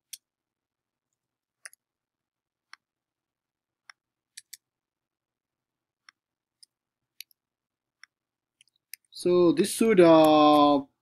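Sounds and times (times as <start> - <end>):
mouse and keyboard clicks: 0.0 - 0.3, 1.6 - 1.8, 3.8 - 4.7, 6.0 - 7.4, 8.0 - 9.1.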